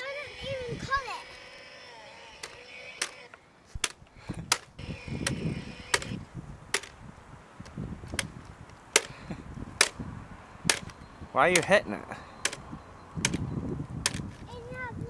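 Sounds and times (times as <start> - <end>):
chainsaw whacking tree trunk: 2.3 - 6.9.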